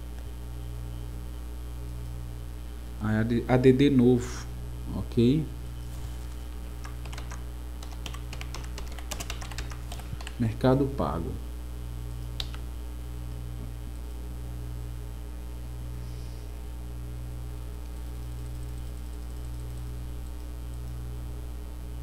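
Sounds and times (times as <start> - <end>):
mains electrical hum: 0.0 - 22.0.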